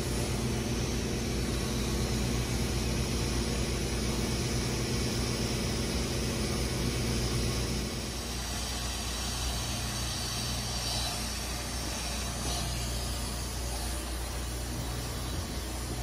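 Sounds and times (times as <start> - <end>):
pumps and motors humming: 0.0 - 16.0.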